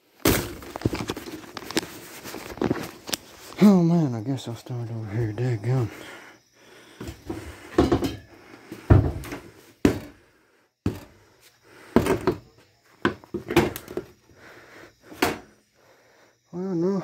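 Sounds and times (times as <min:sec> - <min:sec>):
wooden knocks and thuds: 0:07.0 - 0:10.2, 0:10.8 - 0:11.2, 0:11.9 - 0:14.2, 0:15.1 - 0:15.5.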